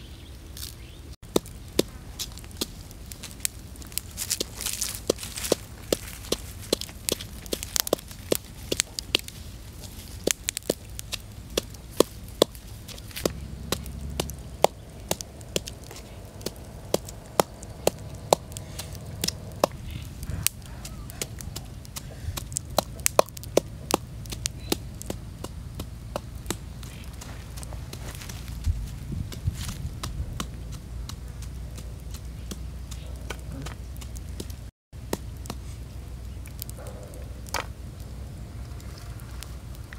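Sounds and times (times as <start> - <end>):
pestle pounding in a mortar: 16.4 - 26.7.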